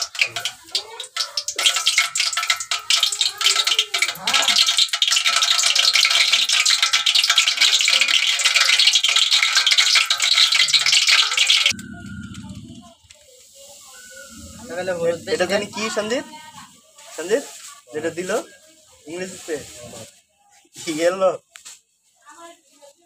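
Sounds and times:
spices sizzling in hot oil: 0.0 - 21.4.

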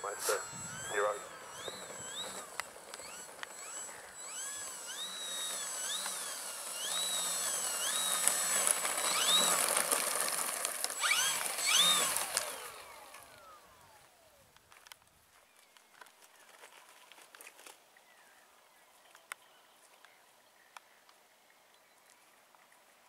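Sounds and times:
model plane electric motor whine: 0.0 - 14.9.

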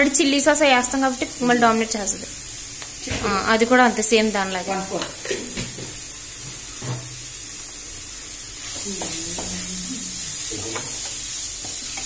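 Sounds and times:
chicken and vegetables sizzling: 0.0 - 12.0
spatula stirring and scraping: 8.6 - 12.0.

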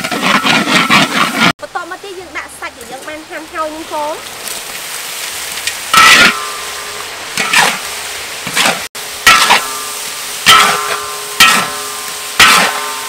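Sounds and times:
metal spatula scraping a wok: 0.0 - 1.5, 5.9 - 13.0
food sizzling: 1.6 - 13.0.

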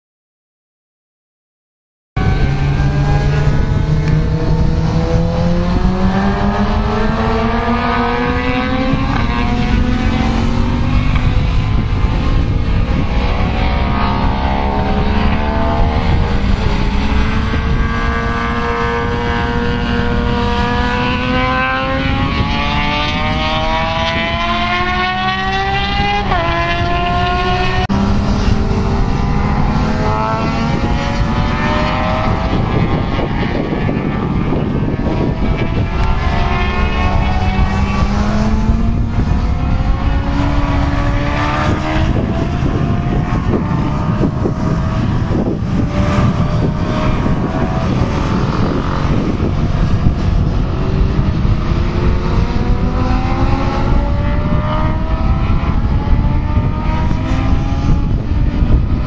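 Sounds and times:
low rushing noise: 2.2 - 59.0
motorcycles racing at high revs: 2.2 - 59.0.

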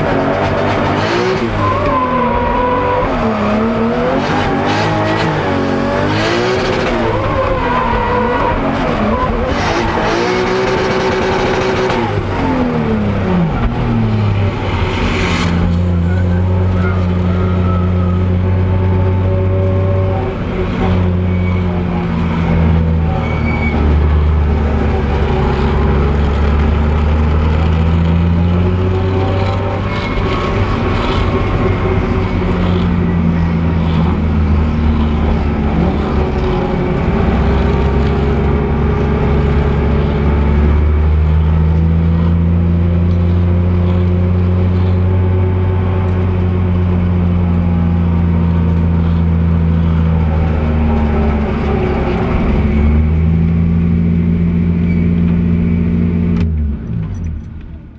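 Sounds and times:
car engine revving: 0.0 - 57.7
tyre squeal: 15.7 - 20.2, 20.8 - 24.2, 54.7 - 56.0.

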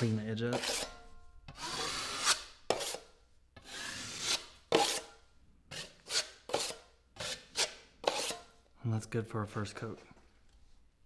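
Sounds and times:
putty knife scraping compound: 0.0 - 8.6.

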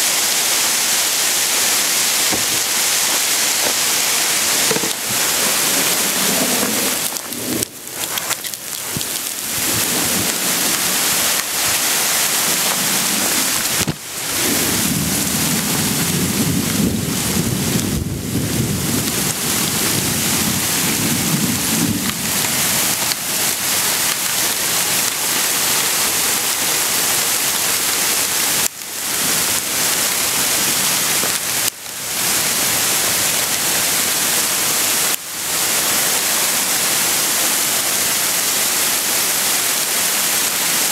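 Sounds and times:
hail pelting down: 0.0 - 40.9
low rumble of thunder: 14.3 - 22.4.

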